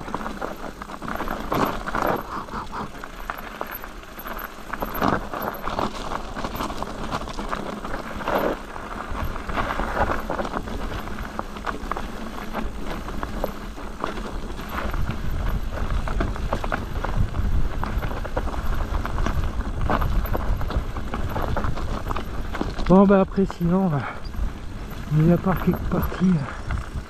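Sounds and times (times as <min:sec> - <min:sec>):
bike rattling: 0:00.0 - 0:27.0
tyres crunching over loose rock: 0:00.0 - 0:27.0.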